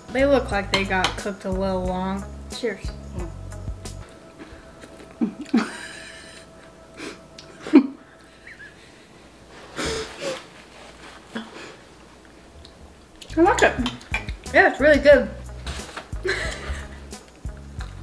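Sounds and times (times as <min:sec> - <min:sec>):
people humming: 0:03.1 - 0:09.2
breathy laughter: 0:05.1 - 0:09.2, 0:16.2 - 0:17.1.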